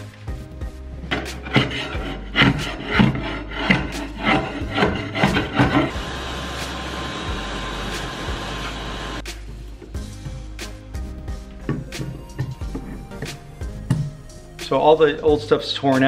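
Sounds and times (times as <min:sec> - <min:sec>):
steel scraper rasping on wood: 0:01.1 - 0:07.0
shop vacuum running: 0:05.2 - 0:09.2.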